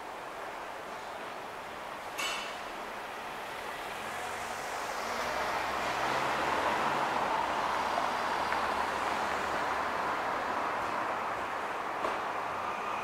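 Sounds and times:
motor vehicle passing: 0:03.8 - 0:11.3.

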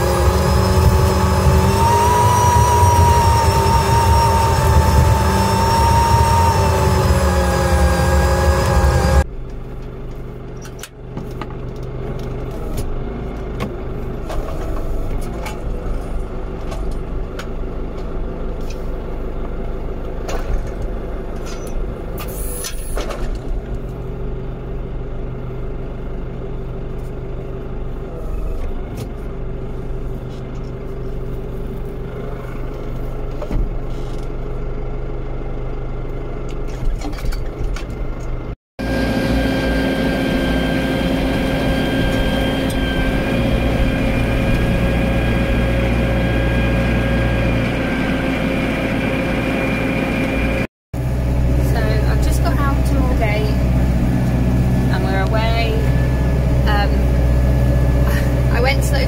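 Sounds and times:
steady whine: 0:00.0 - 0:10.9, 0:38.8 - 0:59.0
tractor engine running: 0:00.0 - 0:59.0.

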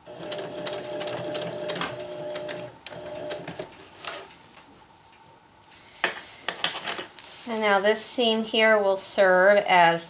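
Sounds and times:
sewing machine stitching: 0:00.0 - 0:03.7
fabric rustling: 0:03.8 - 0:08.0.

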